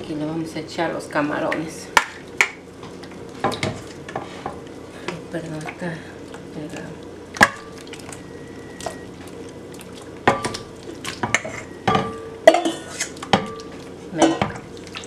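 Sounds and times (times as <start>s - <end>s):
metal ladle clinking on steel bowl: 11.2s - 14.6s.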